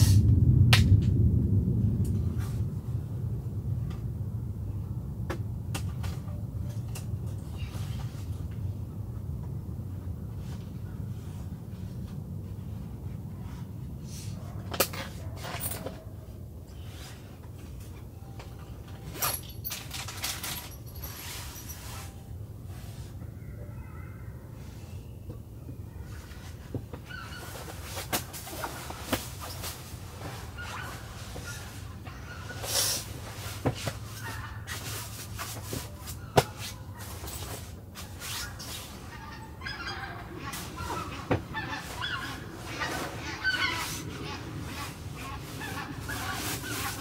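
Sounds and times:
steady low rumble: 0.0 - 47.0
bedding rustling: 16.8 - 23.2, 26.1 - 47.0.

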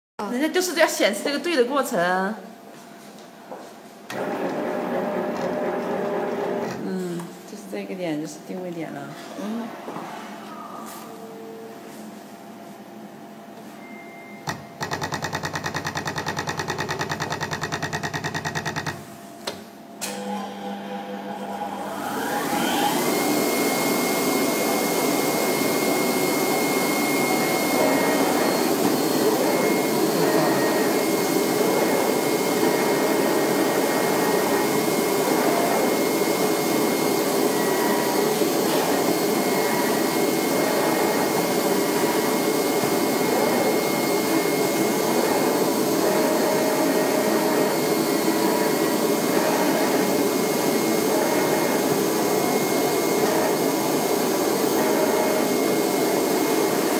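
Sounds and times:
blower rushing: 4.1 - 6.8, 20.2 - 56.9.

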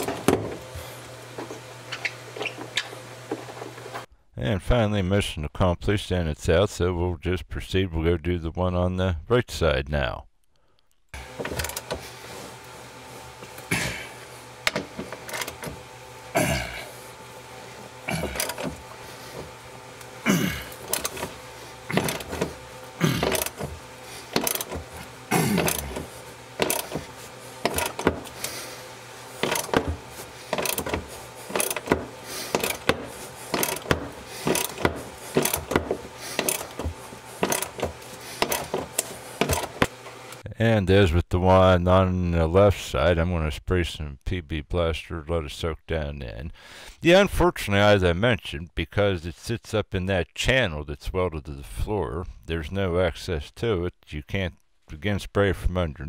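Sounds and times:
faint steady hum: 0.0 - 56.0
ratchet clicking: 21.9 - 22.5, 23.2 - 23.7, 24.3 - 25.0, 25.6 - 27.0, 27.6 - 28.4, 29.4 - 39.9.

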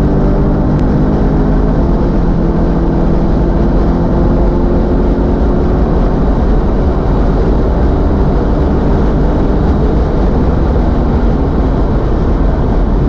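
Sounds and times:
car engine accelerating: 0.0 - 13.0
wind and tyre roar: 0.0 - 13.0.

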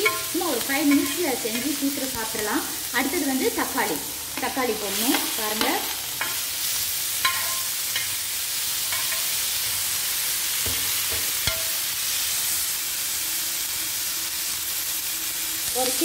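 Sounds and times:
spatula scraping pan: 0.0 - 2.1
vegetables sizzling in oil: 0.0 - 16.0.

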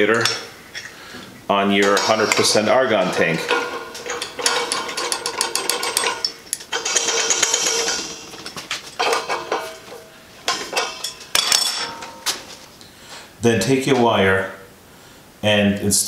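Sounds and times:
wrench clinking on metal: 1.8 - 12.5.

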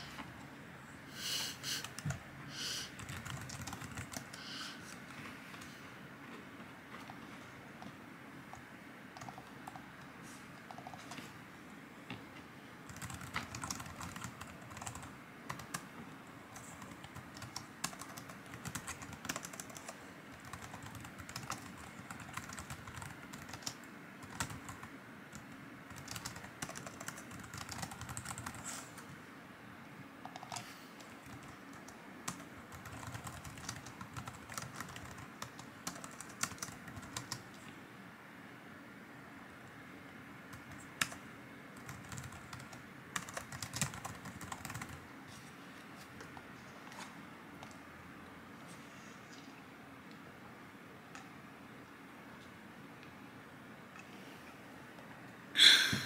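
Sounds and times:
computer keyboard typing clicks: 3.0 - 5.7, 8.5 - 9.8, 12.9 - 15.8, 16.6 - 28.8, 30.2 - 37.5, 40.5 - 41.2, 41.8 - 45.0.

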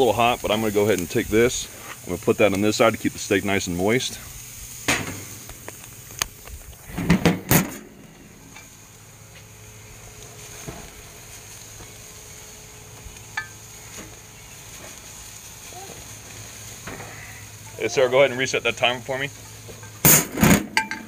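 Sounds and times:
faint sizzling hiss: 0.0 - 21.0
metal grill parts clanking: 4.9 - 5.3, 6.9 - 8.7, 18.8 - 21.0
metal clatter: 19.4 - 21.0.

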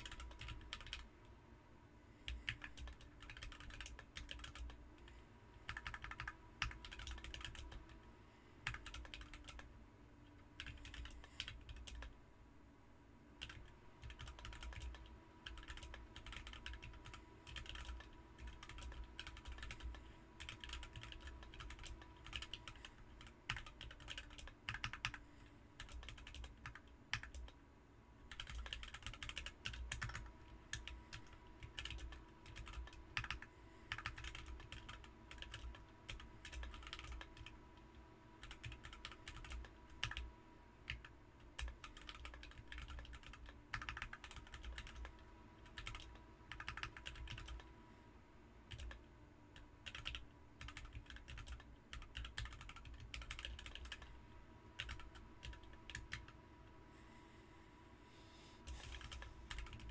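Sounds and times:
typing on mechanical keyboard: 0.0 - 1.1, 2.3 - 4.8, 5.6 - 8.0, 8.6 - 9.7, 10.6 - 12.2, 13.4 - 25.2, 25.8 - 27.6, 28.3 - 40.3, 40.9 - 47.7, 48.7 - 49.0, 49.6 - 54.1, 54.8 - 56.4, 58.8 - 59.9.

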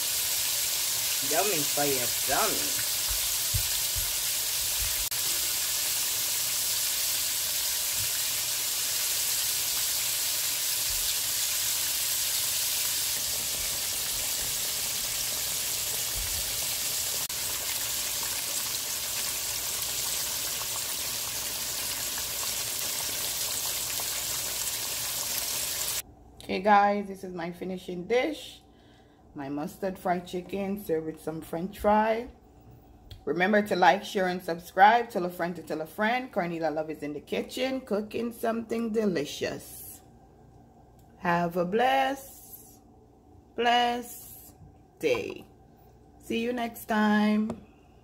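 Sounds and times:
chicken deep-frying in oil: 0.0 - 26.0.

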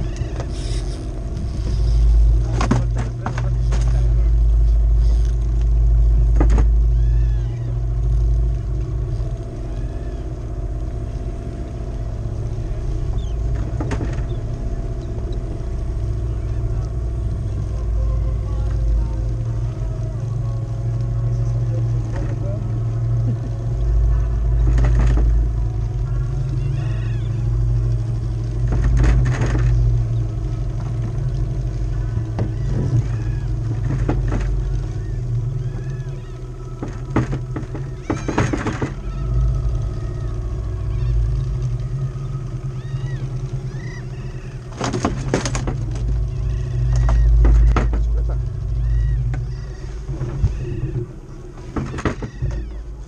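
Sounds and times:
small outboard motor running: 0.0 - 53.0.

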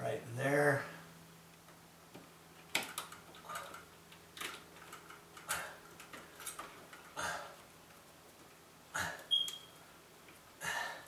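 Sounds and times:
faint steady hum: 0.0 - 11.0
small clicks and rustles: 1.5 - 7.2.

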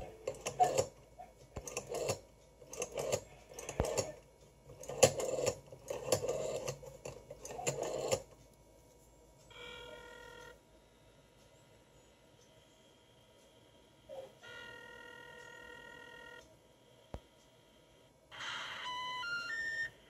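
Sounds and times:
rotary dial clicking: 0.0 - 8.4
multi-pitch telephone tone: 9.5 - 10.6, 14.4 - 16.5, 18.3 - 20.0.

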